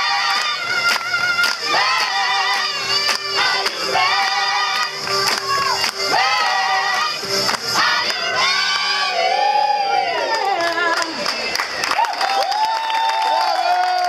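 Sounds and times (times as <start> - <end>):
mixed choir singing: 0.0 - 11.8
hand claps on the beat: 0.3 - 8.3.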